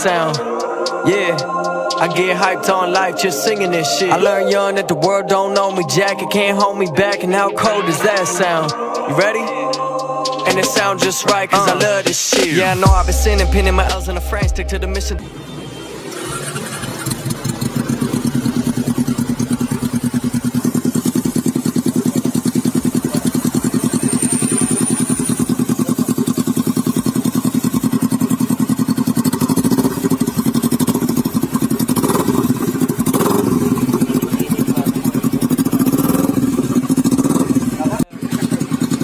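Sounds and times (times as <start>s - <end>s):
motorcycle engine idling: 10.5s - 15.2s, 16.1s - 39.0s.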